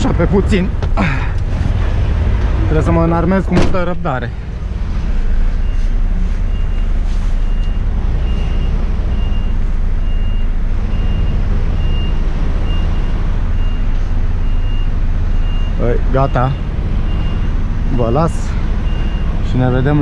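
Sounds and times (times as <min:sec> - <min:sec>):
truck diesel engine idling: 0:00.0 - 0:20.0
reversing alarm beeping: 0:05.6 - 0:17.6, 0:18.8 - 0:19.8.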